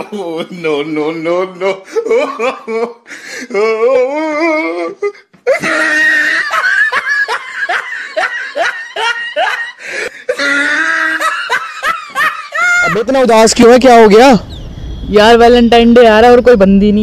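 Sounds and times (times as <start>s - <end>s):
man laughing hard: 0.0s - 13.1s.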